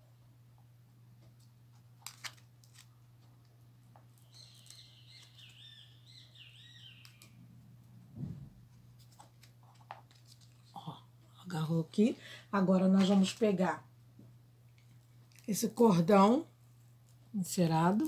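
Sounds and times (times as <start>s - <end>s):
steady low hum: 0.0s - 18.0s
bird warbling: 4.3s - 7.4s
soft bump: 8.1s - 8.6s.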